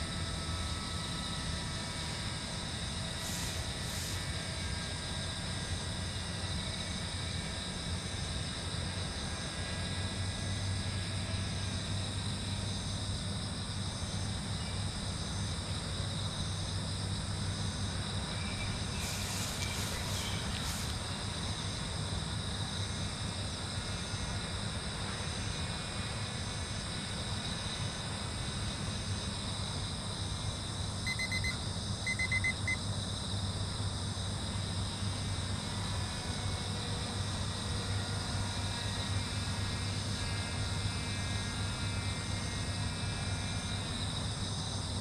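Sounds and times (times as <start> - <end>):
high insect trilling: 0.0 - 7.0, 18.2 - 22.3
short electronic beeps: 31.1 - 32.8.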